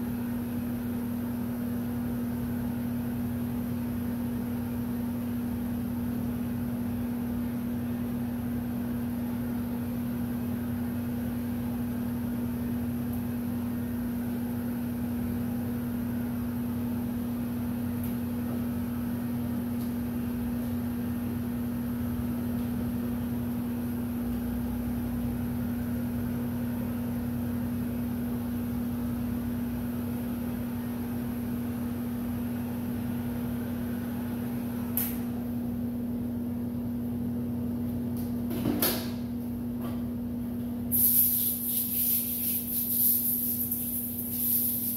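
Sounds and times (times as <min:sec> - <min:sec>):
heat gun motor hum: 0:40.9 - 0:44.9.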